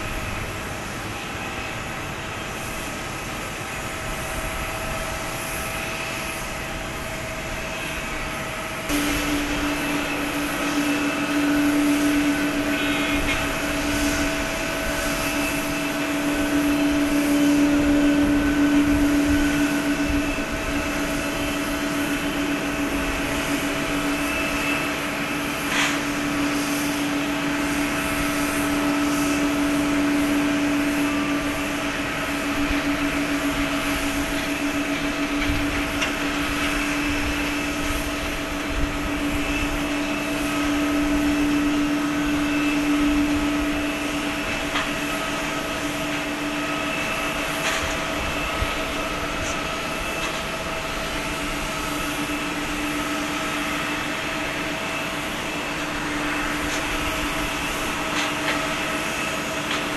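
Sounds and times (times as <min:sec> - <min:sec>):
jet engines whining: 0:00.0 - 0:59.9.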